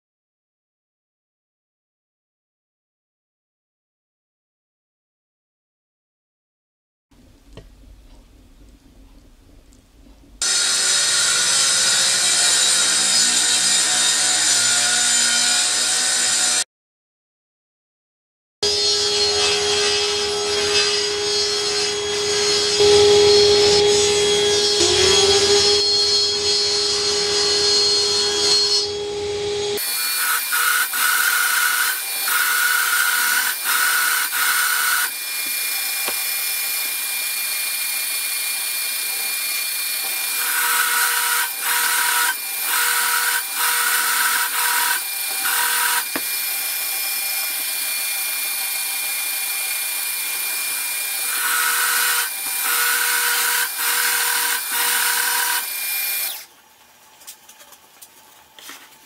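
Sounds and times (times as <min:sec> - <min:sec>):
drill bit boring into plywood: 0:10.4 - 0:16.6, 0:29.8 - 0:56.5
table saw running: 0:10.4 - 0:16.6, 0:18.6 - 0:56.5
drill press motor running: 0:29.8 - 0:56.5.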